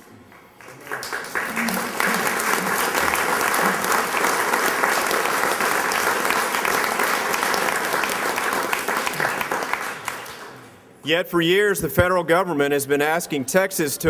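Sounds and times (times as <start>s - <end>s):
people clapping: 0.0s - 10.8s.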